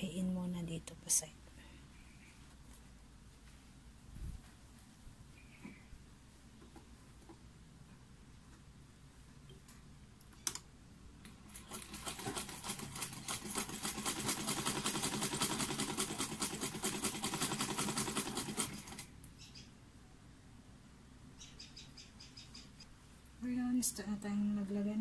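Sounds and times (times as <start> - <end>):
sewing machine stitching clatter: 11.5 - 19.1.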